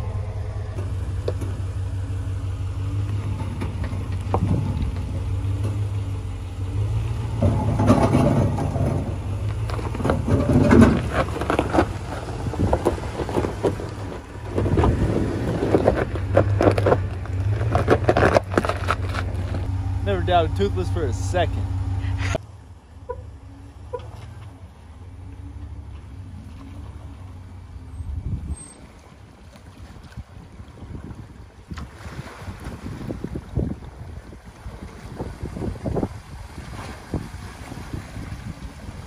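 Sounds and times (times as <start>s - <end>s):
truck engine running low: 0.0s - 31.7s
rocks crunching under tyres: 7.3s - 19.8s.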